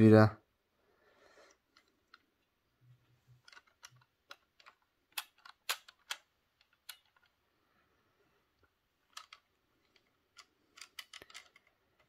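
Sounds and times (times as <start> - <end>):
fingers clicking plastic model: 1.6 - 7.4, 8.6 - 12.0.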